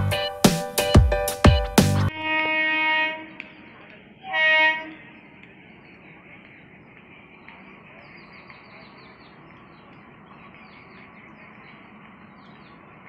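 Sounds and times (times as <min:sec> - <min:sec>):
small bird chirping: 0:05.7 - 0:13.0.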